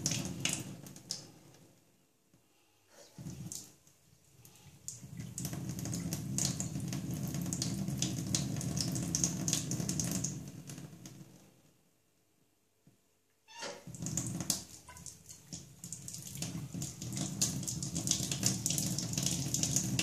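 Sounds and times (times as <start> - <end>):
water running from tap: 0.0 - 1.3, 3.2 - 3.8, 4.5 - 11.2, 13.6 - 20.0.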